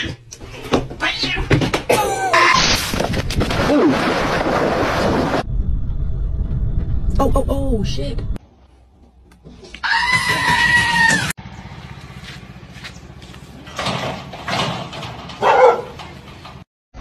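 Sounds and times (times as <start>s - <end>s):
dog barking: 15.4s - 16.0s.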